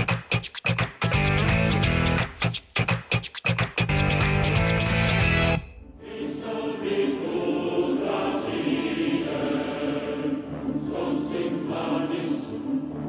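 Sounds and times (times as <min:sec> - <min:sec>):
theme music with choir-like voices: 0:04.8 - 0:13.0.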